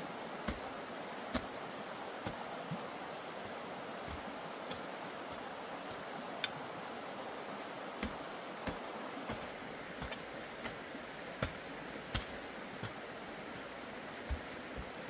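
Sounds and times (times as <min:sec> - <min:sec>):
background hiss: 0:00.0 - 0:15.0
hoe chopping into soil: 0:11.4 - 0:13.0.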